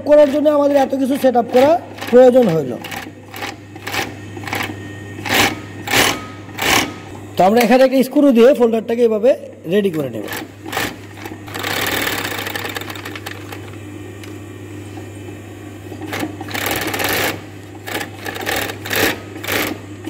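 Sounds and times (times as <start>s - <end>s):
sewing machine stitching denim: 0.0s - 7.1s, 10.2s - 13.6s, 16.0s - 19.8s
motor hum: 0.0s - 20.0s.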